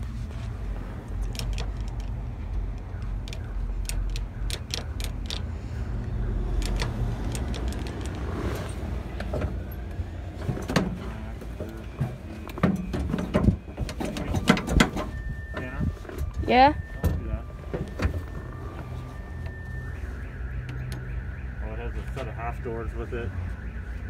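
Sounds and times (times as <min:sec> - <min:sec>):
sharp clicks and knocks: 0:01.0 - 0:15.1.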